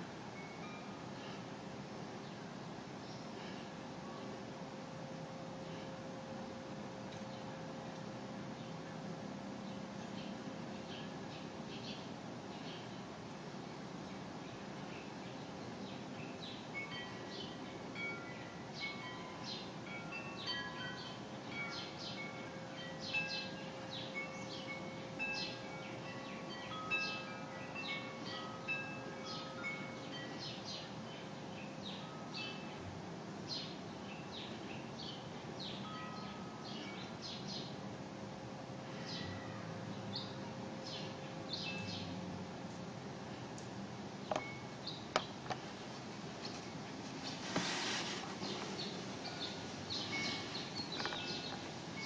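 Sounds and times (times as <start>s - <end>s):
wind chimes ringing: 0.4s - 1.5s, 16.2s - 31.0s, 35.8s - 37.3s, 44.3s - 44.9s, 49.2s - 52.0s
small birds chirping: 43.3s - 45.6s, 48.1s - 52.0s.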